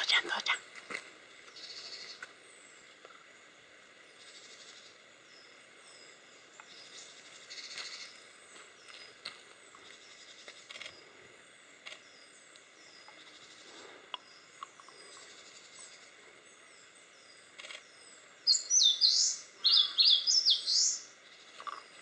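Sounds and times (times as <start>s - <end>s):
faint bird chirps: 0.0s - 0.7s, 4.1s - 22.0s
warbler singing: 11.5s - 22.0s.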